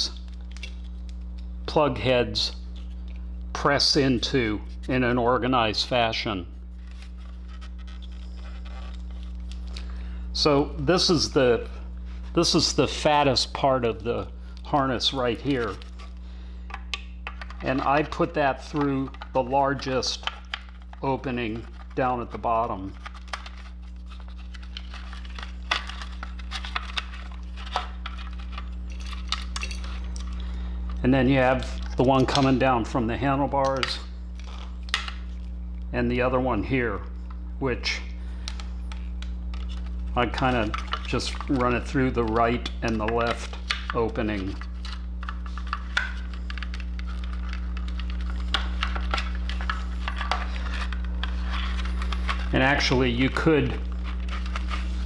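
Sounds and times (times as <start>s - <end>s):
low hum: 0.0s - 55.0s
plugs and wires clicking and rattling: 14.6s - 32.8s, 38.4s - 54.8s.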